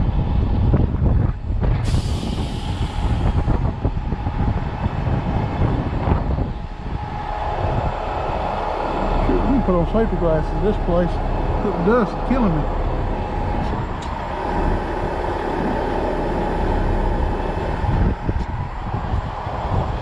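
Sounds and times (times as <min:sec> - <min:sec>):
diesel truck rumbling: 0:00.0 - 0:20.0
sharp air hiss: 0:01.8 - 0:03.6.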